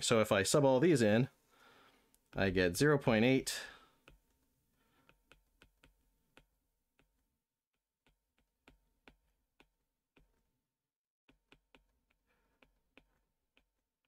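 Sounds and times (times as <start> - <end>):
stylus tapping on tablet screen: 4.0 - 10.6, 11.3 - 14.0.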